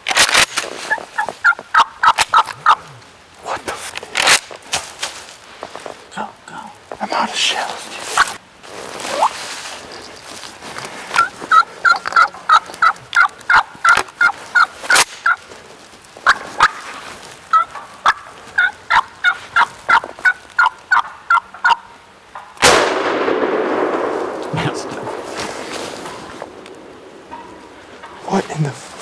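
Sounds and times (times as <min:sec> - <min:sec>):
wild turkey yelping: 0:00.9 - 0:03.0, 0:11.1 - 0:15.4, 0:16.2 - 0:16.9, 0:17.5 - 0:22.6.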